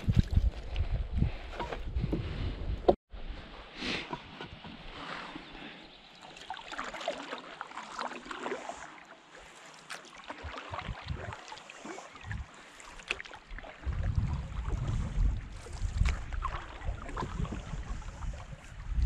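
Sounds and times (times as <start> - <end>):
water splashing and dripping: 6.1 - 19.0.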